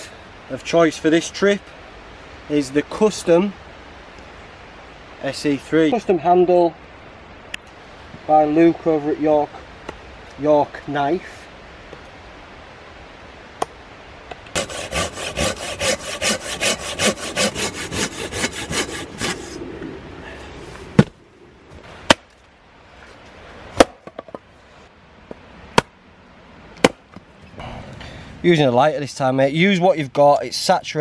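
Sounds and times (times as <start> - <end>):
hand saw cutting wood: 14.5 - 19.6
hatchet chopping wood: 23.8 - 24.3, 26.8 - 27.2.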